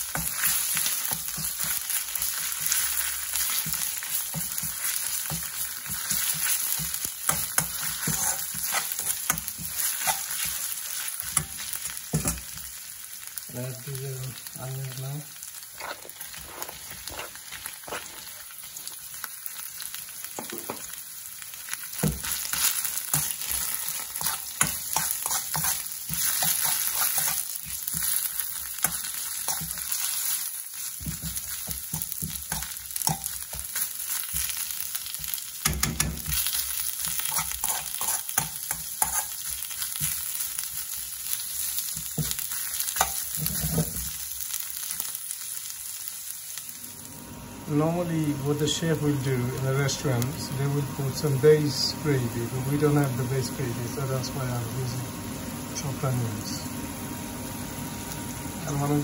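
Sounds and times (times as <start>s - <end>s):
onions sizzling in oil: 0.0s - 59.0s
metal spoon scraping pan: 7.3s - 10.6s, 23.1s - 28.1s, 37.3s - 39.4s.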